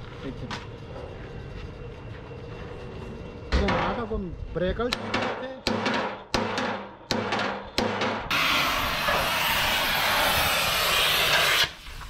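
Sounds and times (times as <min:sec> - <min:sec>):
loud steady hiss: 0:08.3 - 0:12.0.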